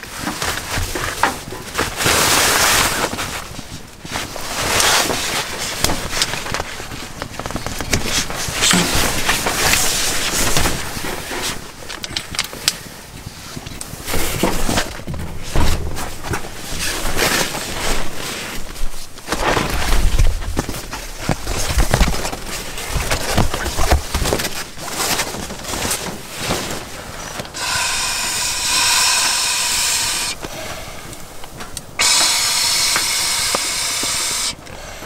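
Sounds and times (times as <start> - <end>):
canvas rustling: 0.0 - 12.0, 12.9 - 27.6.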